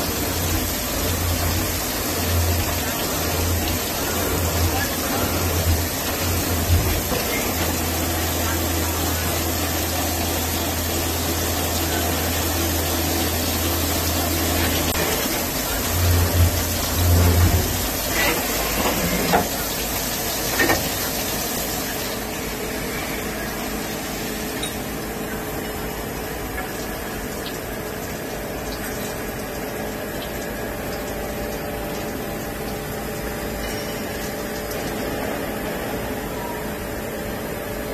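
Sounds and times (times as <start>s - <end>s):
low motor hum: 0.0s - 19.9s
coolant spraying and splashing: 0.0s - 25.0s, 26.0s - 36.3s
dull steady machine noise: 0.0s - 37.9s.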